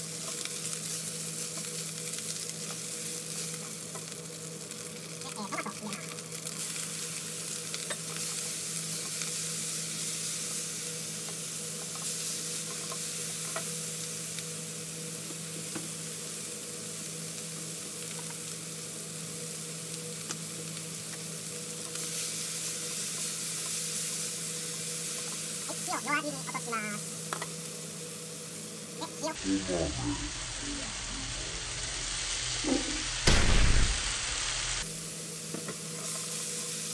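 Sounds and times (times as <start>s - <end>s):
food sizzling in frying pan: 0.0s - 36.9s
low hum: 29.5s - 34.9s.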